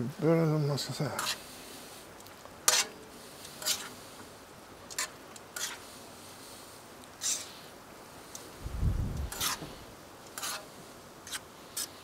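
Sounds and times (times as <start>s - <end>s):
faint sizzle: 0.0s - 12.0s
metal tongs scraping griddle: 1.0s - 2.0s, 2.6s - 4.0s, 4.9s - 5.9s, 7.2s - 7.5s, 9.2s - 12.0s.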